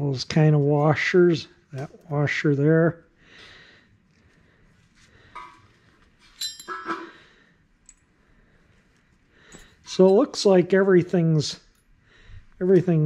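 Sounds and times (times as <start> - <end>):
small metal parts clinking: 6.2 - 7.2, 7.8 - 8.1.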